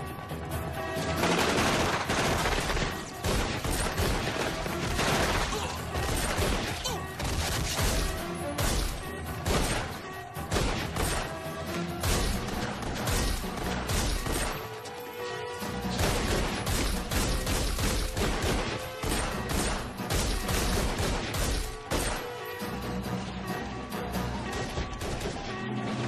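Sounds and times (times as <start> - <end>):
action film music: 0.0 - 26.0
rapid pistol gunfire: 1.2 - 9.9, 16.0 - 22.3.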